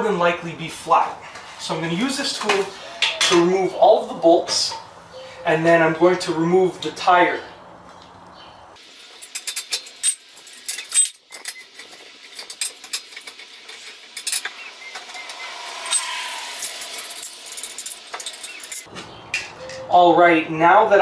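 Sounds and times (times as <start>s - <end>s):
lug wrench clicking and rattling: 8.8s - 18.9s.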